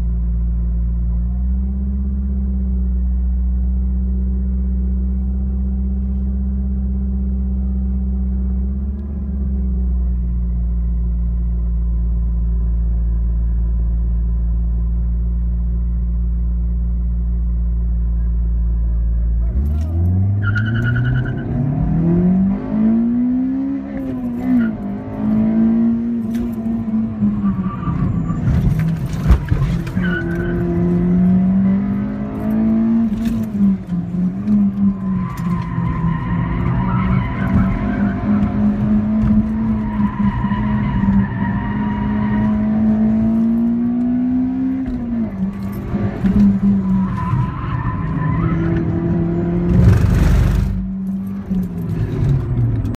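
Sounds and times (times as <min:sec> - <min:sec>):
car engine at high revs: 0:00.0 - 0:53.0
tires squealing: 0:20.2 - 0:22.0, 0:24.1 - 0:25.1, 0:26.3 - 0:31.4, 0:34.4 - 0:43.6, 0:45.0 - 0:50.8.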